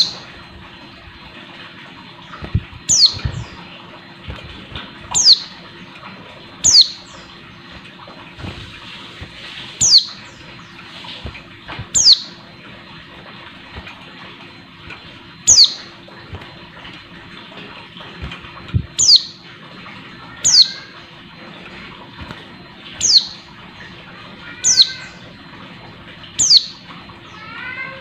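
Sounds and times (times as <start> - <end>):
wing flutters: 0.0 - 25.8
bird giving high downward calls: 2.9 - 3.6, 5.1 - 5.6, 6.6 - 7.2, 9.8 - 10.3, 11.9 - 12.4, 15.5 - 15.9, 19.0 - 19.4, 20.4 - 21.0, 23.0 - 23.4, 24.4 - 25.2, 26.4 - 28.0.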